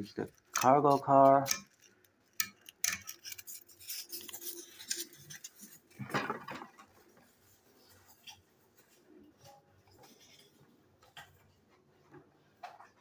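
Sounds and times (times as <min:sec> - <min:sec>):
plastic toy rustling: 0:00.0 - 0:08.9.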